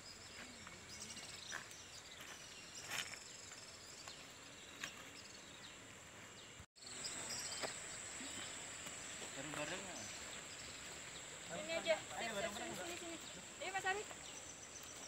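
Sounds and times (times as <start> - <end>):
high insect drone: 6.8 - 15.0.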